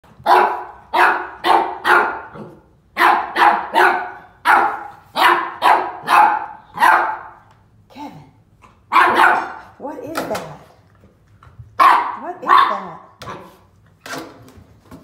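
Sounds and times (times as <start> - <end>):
puppy barking: 0.1 - 7.4, 8.9 - 9.8, 11.8 - 13.6.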